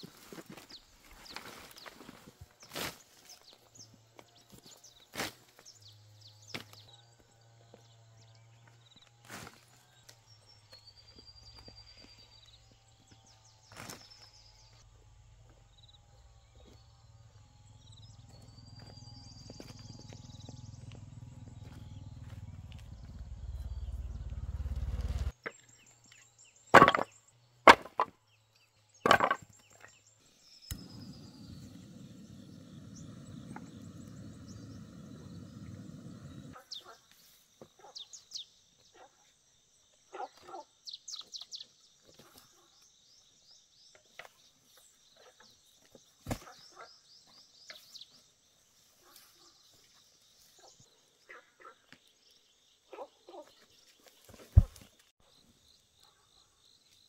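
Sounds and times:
bird chirps: 10.0s - 27.4s, 28.6s - 37.0s.

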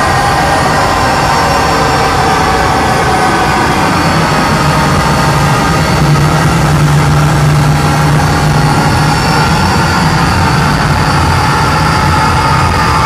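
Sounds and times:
electronic drone music: 0.0s - 13.0s.

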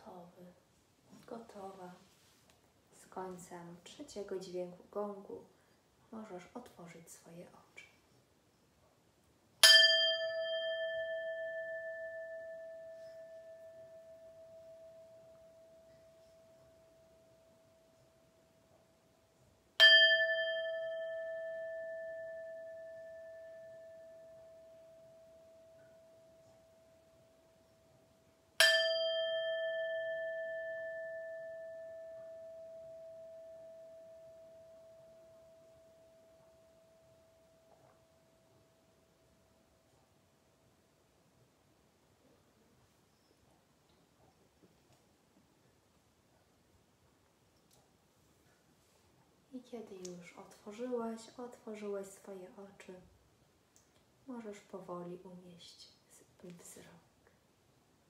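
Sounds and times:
singing bowl ringing: 9.6s - 18.3s, 19.8s - 27.8s, 28.6s - 38.7s.

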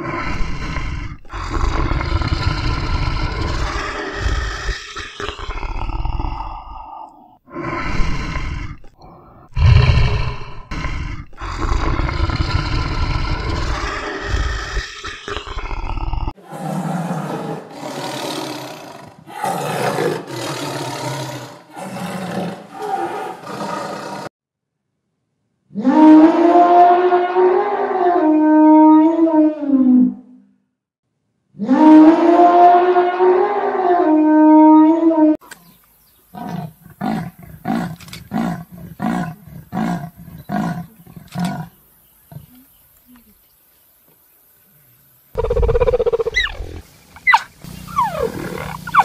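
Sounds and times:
tiger roaring: 0.0s - 6.9s, 7.5s - 24.3s, 36.4s - 42.5s, 47.2s - 49.0s
leopard rasping grunts: 36.4s - 42.7s
elephant trumpeting: 47.2s - 49.0s.

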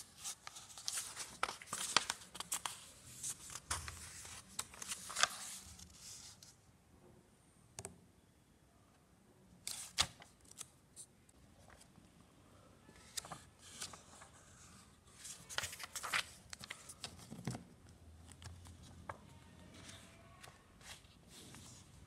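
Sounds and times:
paper pages flipping: 0.0s - 6.5s, 9.7s - 10.7s, 13.0s - 14.3s, 15.2s - 17.6s.

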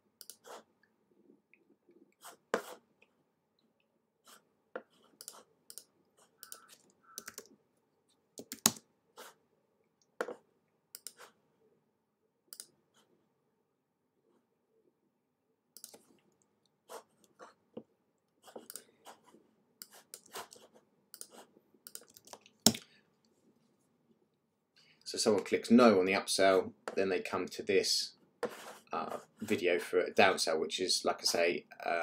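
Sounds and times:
computer mouse clicks: 0.2s - 0.4s, 5.2s - 7.5s, 10.9s - 11.3s, 12.5s - 12.8s, 15.8s - 16.4s, 21.1s - 22.8s
keyboard keystrokes: 6.4s - 7.5s.

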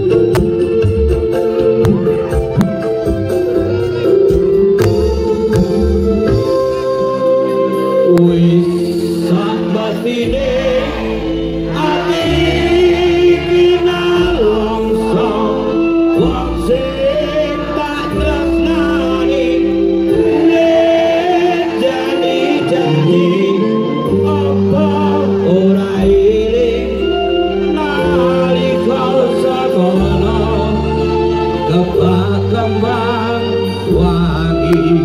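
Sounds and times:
band playing live: 0.0s - 35.0s
man singing lead: 7.7s - 35.0s
audience singing along: 8.1s - 35.0s.

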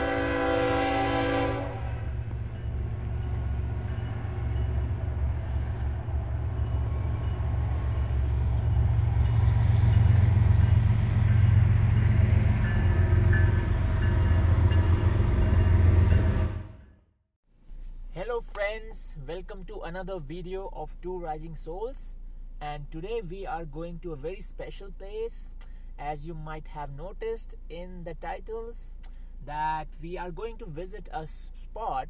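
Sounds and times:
train cars rumbling past: 0.0s - 17.0s
train horn: 0.0s - 17.0s.

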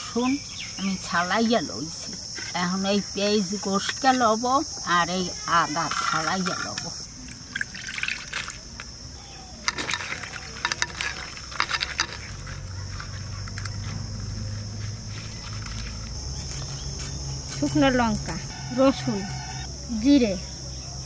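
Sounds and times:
crickets chirring: 0.0s - 21.0s
chillies rinsed by hand in water: 5.9s - 13.9s.

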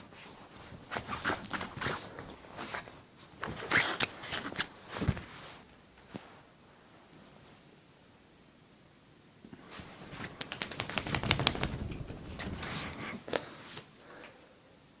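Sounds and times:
dog claws clicking and scrabbling: 10.2s - 12.6s.

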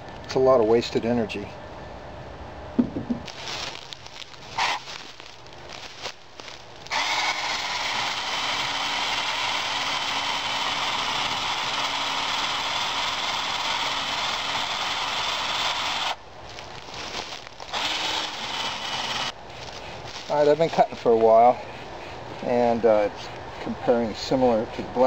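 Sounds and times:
electric chainsaw cutting wood: 6.8s - 16.2s, 16.9s - 19.4s.

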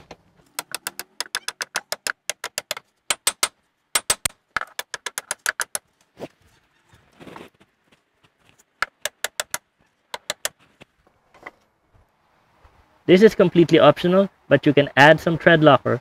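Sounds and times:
hammer tapping metal: 0.5s - 5.8s, 8.8s - 10.6s.

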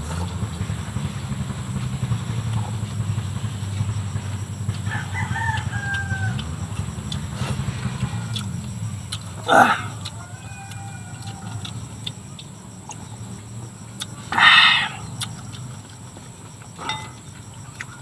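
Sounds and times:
low rumble: 0.0s - 10.1s
faint eating clicks: 0.0s - 18.0s
rooster crowing: 4.2s - 12.5s, 14.3s - 15.6s.

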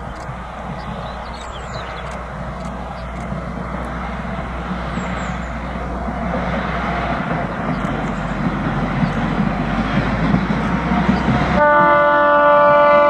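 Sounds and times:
diesel locomotive engine drone: 0.0s - 13.0s.

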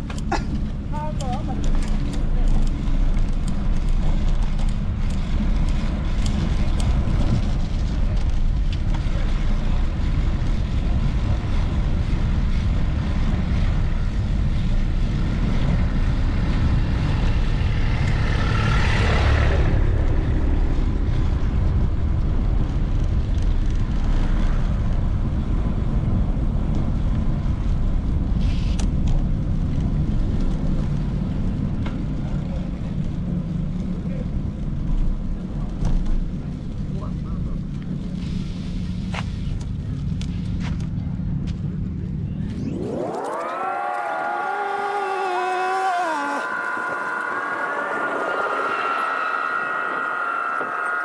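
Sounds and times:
street traffic: 0.0s - 51.0s
wind rumble on microphone: 0.0s - 51.0s
vehicle passing: 16.3s - 21.4s, 42.4s - 51.0s.

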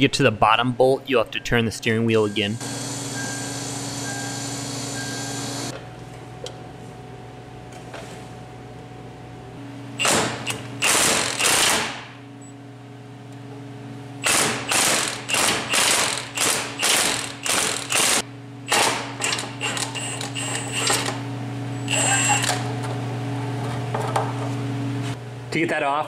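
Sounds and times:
steady low hum: 0.0s - 26.0s
impact wrench hammering: 10.0s - 12.1s, 14.2s - 21.1s.

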